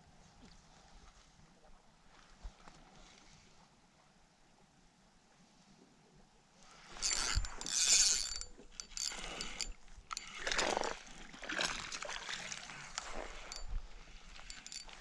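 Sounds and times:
fishing reel whirring and clicking: 6.7 - 15.0
water splashing: 10.2 - 13.6.

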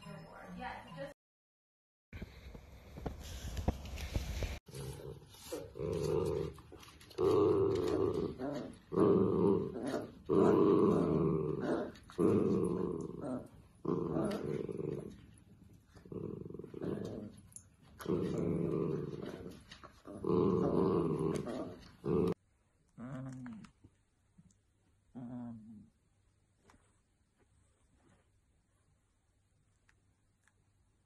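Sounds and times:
dogs growling: 4.7 - 23.9, 25.1 - 25.9.

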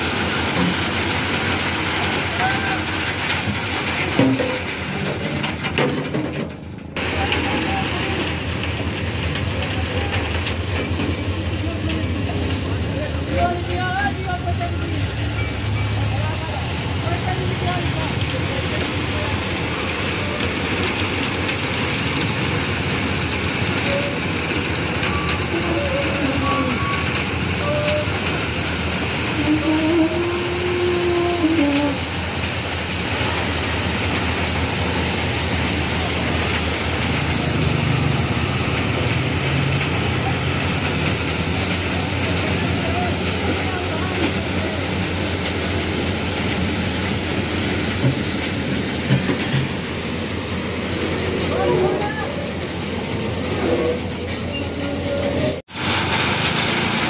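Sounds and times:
stones pouring hiss and rattle: 0.0 - 6.4
heavy low train sound: 0.0 - 57.0.

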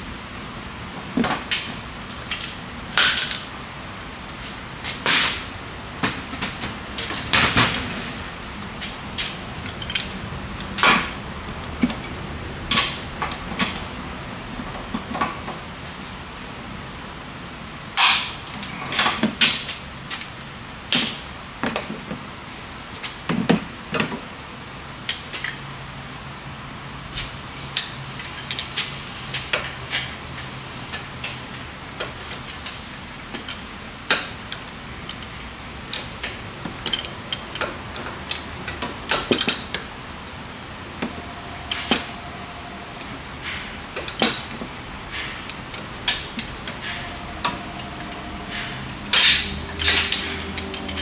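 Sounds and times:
wrench clicking and clanking: 45.5 - 51.0.

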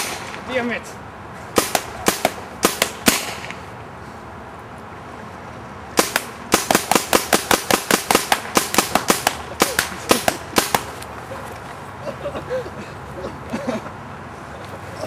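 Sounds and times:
paintball marker firing rapidly: 1.6 - 3.6, 6.0 - 10.9.

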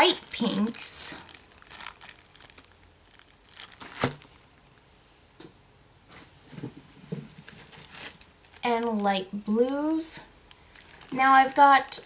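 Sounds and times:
plastic bag crinkling: 0.0 - 4.6, 7.5 - 9.0, 10.4 - 12.0.

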